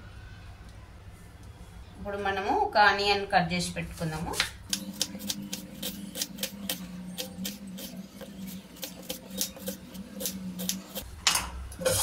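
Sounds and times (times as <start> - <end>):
knife slicing onion on board: 4.7 - 11.0.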